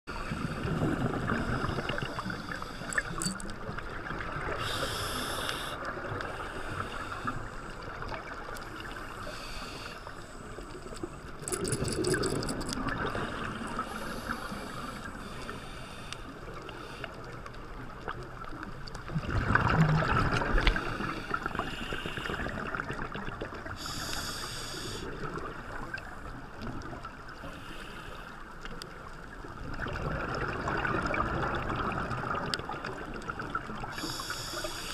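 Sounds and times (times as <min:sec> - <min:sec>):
underwater hiss and rumble: 0:00.1 - 0:34.9
diver exhalation bubbles: 0:11.4 - 0:13.1.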